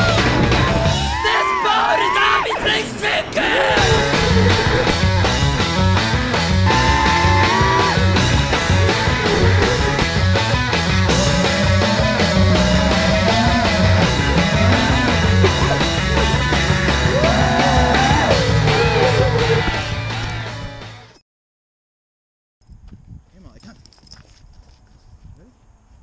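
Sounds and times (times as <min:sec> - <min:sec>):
rock music: 0:00.0 - 0:01.7, 0:02.8 - 0:21.2
sliding melody line: 0:03.8 - 0:20.6
steady drum beat: 0:03.8 - 0:20.9.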